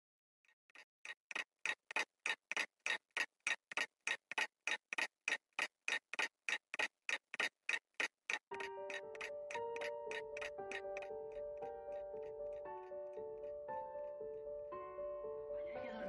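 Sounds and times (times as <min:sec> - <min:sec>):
alarm clock ticking: 0:01.3 - 0:13.9.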